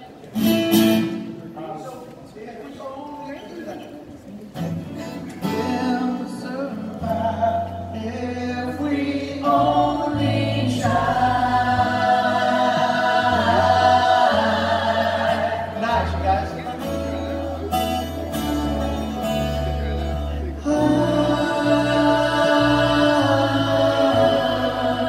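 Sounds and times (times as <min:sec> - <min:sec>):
live band guitars and drum: 0:00.0 - 0:01.5, 0:15.4 - 0:21.0
young voices singing in harmony: 0:05.4 - 0:16.2, 0:20.6 - 0:25.0.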